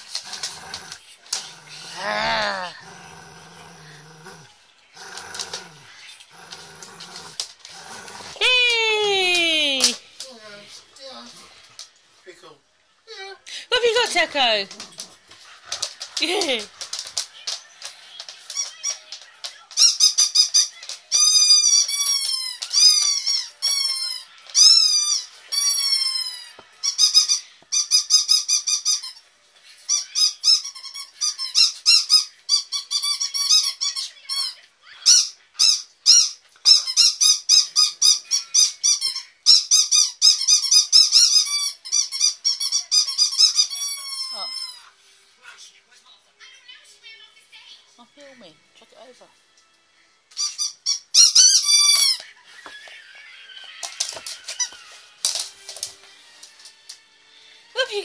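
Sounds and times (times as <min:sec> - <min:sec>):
dog toy squeaker squeaking: 0:19.8 - 0:29.2, 0:29.9 - 0:44.8, 0:50.3 - 0:52.2.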